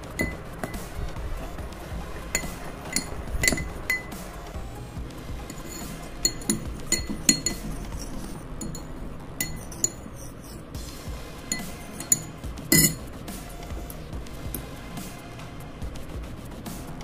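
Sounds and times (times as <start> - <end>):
spoon clinking against glass bowl: 0.2 - 0.8, 2.4 - 4.2, 5.5 - 10.6, 11.5 - 13.0.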